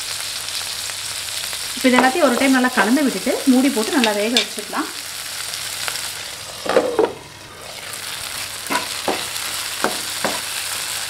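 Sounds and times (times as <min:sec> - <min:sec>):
oil sizzling in a frying pan: 0:00.0 - 0:11.0
spatula knocking against pan: 0:08.7 - 0:10.5.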